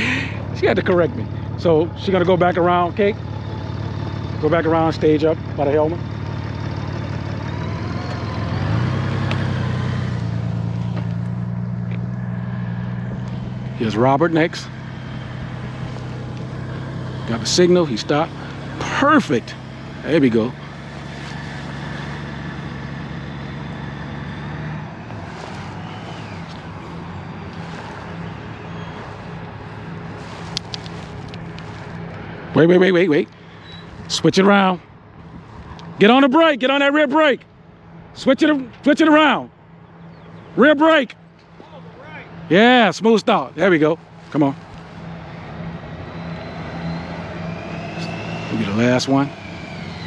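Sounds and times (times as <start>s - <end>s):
motorcycle engine running: 0.0s - 34.6s.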